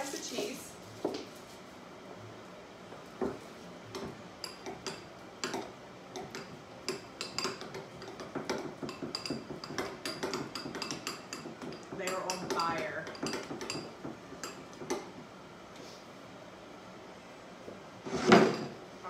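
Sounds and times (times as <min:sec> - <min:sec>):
spoon stirring in ceramic bowl: 0:04.0 - 0:15.1.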